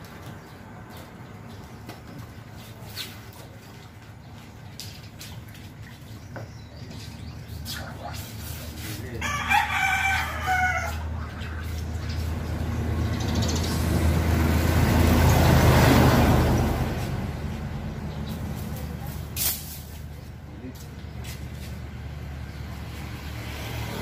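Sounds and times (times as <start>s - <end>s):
motor vehicle passing: 0.0s - 24.0s
rooster crowing: 9.2s - 11.1s.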